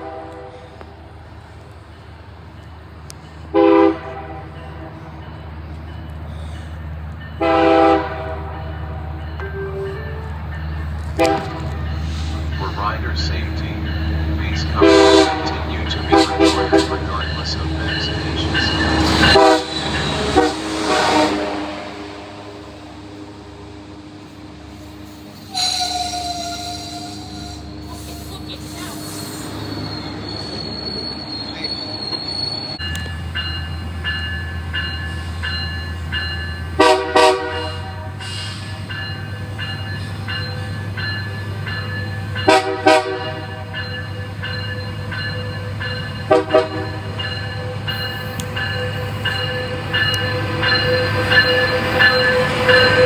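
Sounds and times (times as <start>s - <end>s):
locomotive horn blasts: 0.0s - 0.6s, 3.5s - 4.6s, 7.4s - 8.5s, 11.2s - 11.7s, 14.8s - 17.1s, 19.1s - 23.4s, 25.5s - 28.3s, 36.8s - 38.2s, 42.4s - 43.7s, 46.3s - 47.0s
locomotive rumble: 0.0s - 53.0s
passenger train passing: 0.0s - 53.0s.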